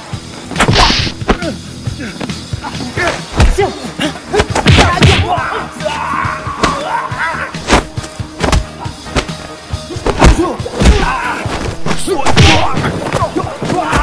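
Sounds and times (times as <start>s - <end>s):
action music: 0.0s - 14.0s
punch and kick hits: 0.5s - 1.5s, 4.4s - 5.4s, 7.6s - 9.4s, 10.0s - 13.3s.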